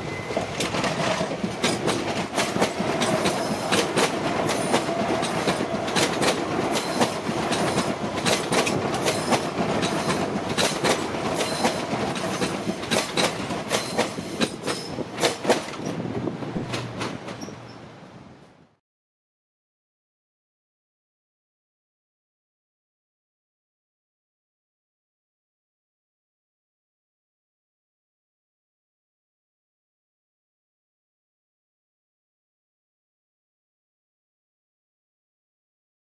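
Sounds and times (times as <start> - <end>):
wheels clacking over rail joints: 0.0 - 18.0
electric train passing: 0.0 - 18.5.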